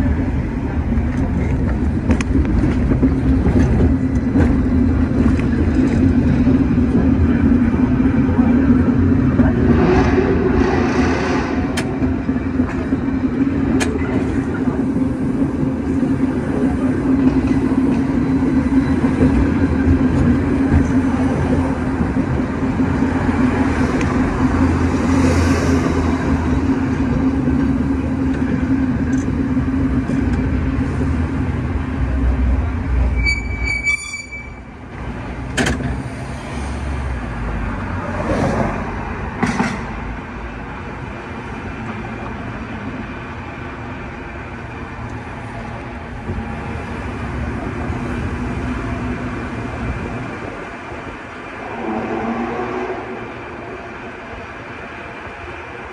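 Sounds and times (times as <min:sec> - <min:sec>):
cable car rumbling on track: 0:00.0 - 0:55.9
brief high squeal: 0:33.1 - 0:34.6.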